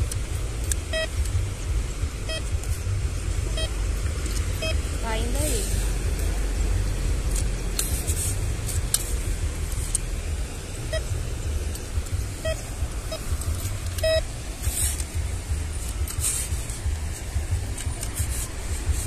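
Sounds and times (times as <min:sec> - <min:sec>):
low rumble: 0:00.0 - 0:17.8
metal detector beeps: 0:00.9 - 0:01.2, 0:03.5 - 0:03.8, 0:04.6 - 0:05.4, 0:10.9 - 0:11.2, 0:12.4 - 0:15.0.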